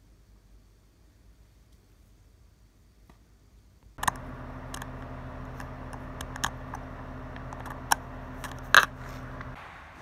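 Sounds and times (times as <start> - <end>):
low electrical hum: 4.0 - 9.6.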